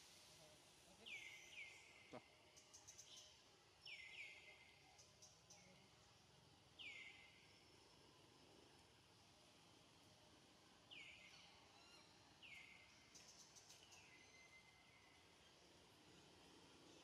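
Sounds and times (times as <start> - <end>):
outdoor background noise: 0.0 - 17.0.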